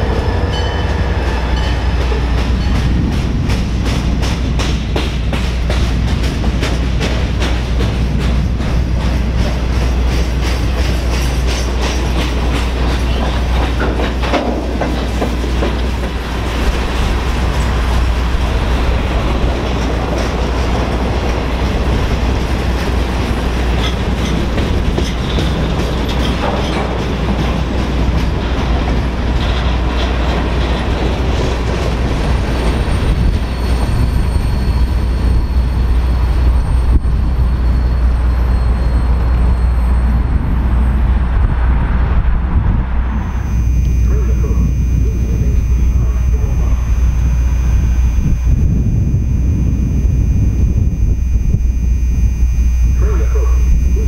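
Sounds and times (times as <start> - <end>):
freight train rumbling past: 0.0 - 43.5
wheels clicking over rail joints: 1.8 - 33.4
high-pitched whine: 43.1 - 54.0.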